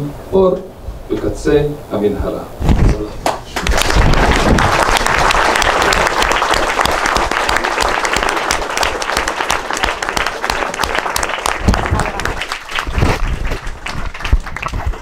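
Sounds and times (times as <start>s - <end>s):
audience applauding: 3.6s - 15.0s.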